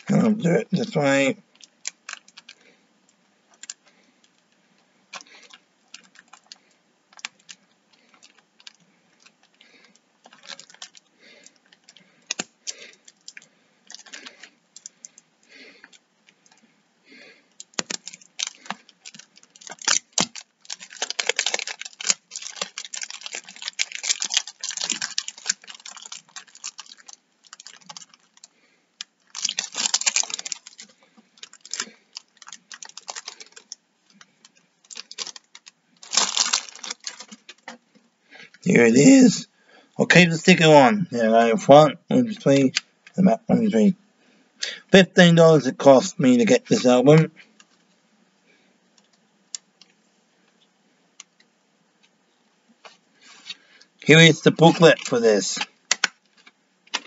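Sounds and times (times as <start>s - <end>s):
plastic wrap crinkling: 0.0s - 2.8s, 3.5s - 16.6s, 17.2s - 38.6s, 52.0s - 57.0s.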